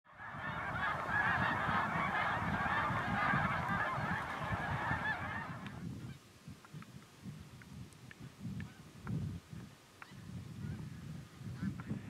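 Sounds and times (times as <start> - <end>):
flock of geese honking: 0.1 - 5.8.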